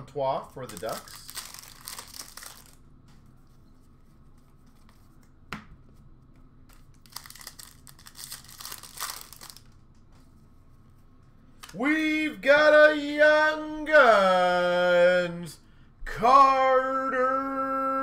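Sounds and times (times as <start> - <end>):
foil wrappers crinkling: 0.6 - 2.8, 6.7 - 9.8.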